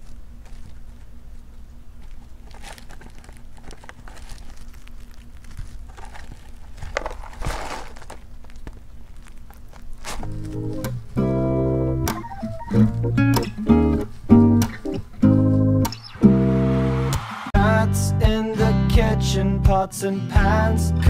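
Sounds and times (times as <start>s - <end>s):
rat scratching cardboard box: 0.0s - 11.3s
low steady hum: 0.0s - 17.0s.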